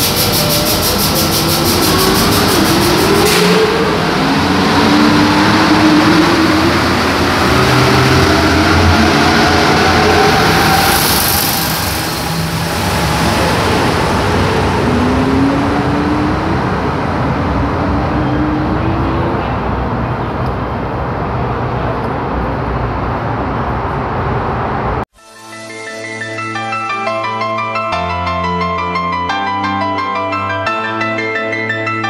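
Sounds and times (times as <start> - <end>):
train passing: 0.0 - 25.0
train rumble: 0.0 - 25.0.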